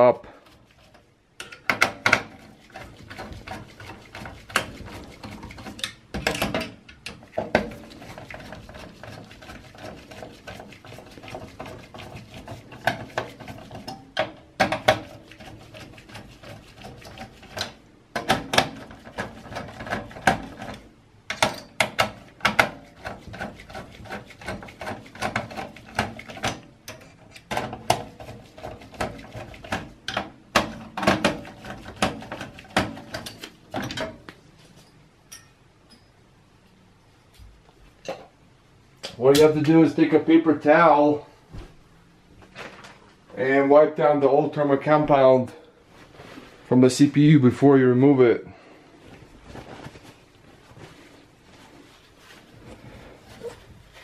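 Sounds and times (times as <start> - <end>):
screwdriver clicks and metal clinks: 34.8 - 36.1.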